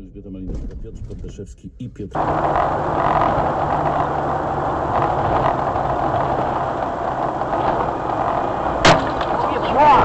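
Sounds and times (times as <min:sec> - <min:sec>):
car engine running: 0:02.2 - 0:10.0
tyre noise on wet road: 0:02.2 - 0:10.0.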